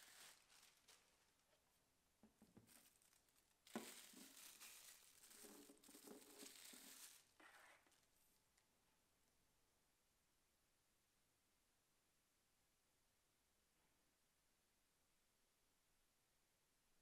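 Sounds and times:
plastic wrapping crinkling: 0.0s - 1.6s, 2.6s - 8.0s.

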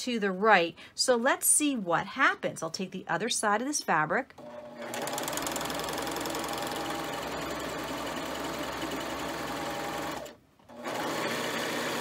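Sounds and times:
serger sewing machine running: 4.4s - 12.0s.

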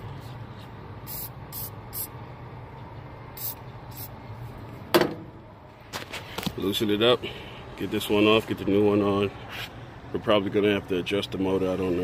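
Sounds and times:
aerosol spray hissing: 1.1s - 2.1s, 3.4s - 4.1s.

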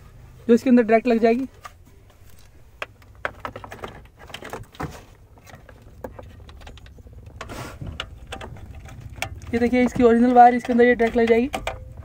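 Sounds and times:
rustle: 0.0s - 9.6s
low steady hum: 0.0s - 12.0s
plastic clicks and knocks: 2.3s - 12.0s.

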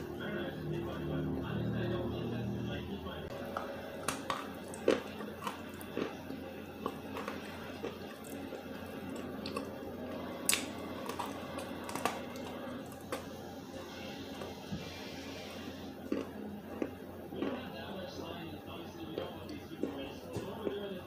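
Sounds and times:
crunching and chewing clay: 3.3s - 13.4s, 15.5s - 18.0s, 19.0s - 21.0s.

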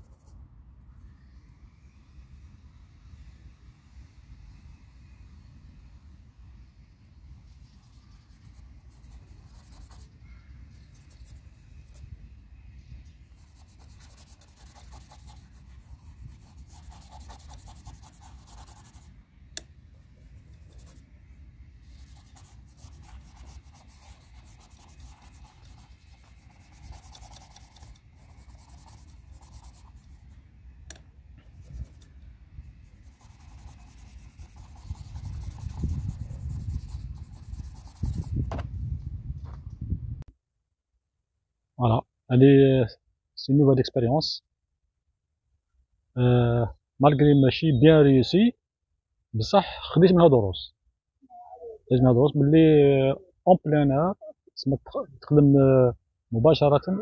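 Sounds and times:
paintbrush scrubbing on canvas: 7.5s - 10.1s, 13.3s - 19.1s, 21.8s - 30.4s, 31.5s - 38.5s.

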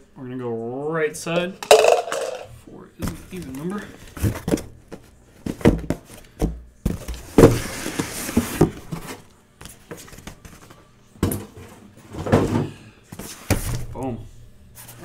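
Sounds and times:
cardboard box knocks and thumps: 5.4s - 9.2s.

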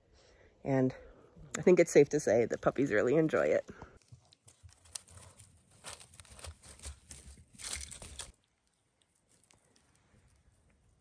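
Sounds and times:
paws crunching over dry leaves: 4.0s - 8.5s.

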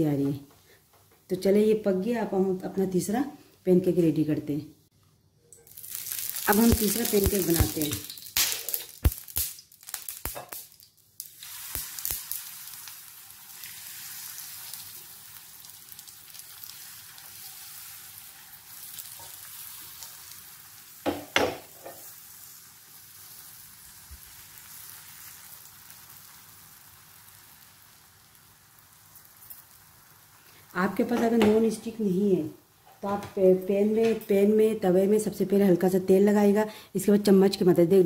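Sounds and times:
batter sizzling in a pan: 5.6s - 31.2s.

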